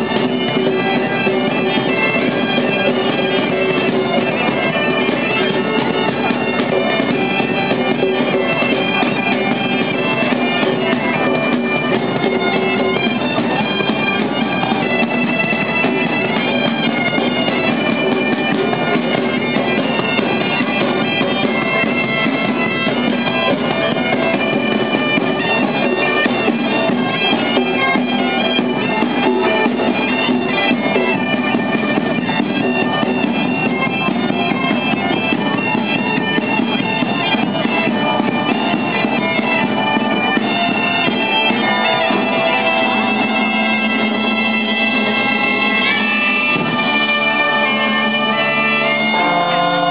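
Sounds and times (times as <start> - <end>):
bagpipes playing a tune: 0.0 - 49.9
drums beating: 0.0 - 49.9.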